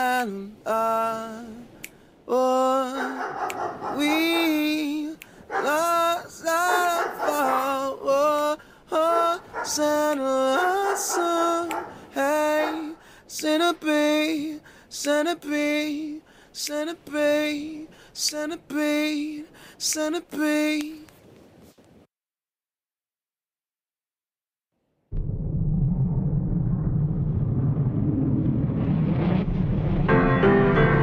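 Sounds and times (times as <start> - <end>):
person singing unaccompanied: 0.0 - 21.1.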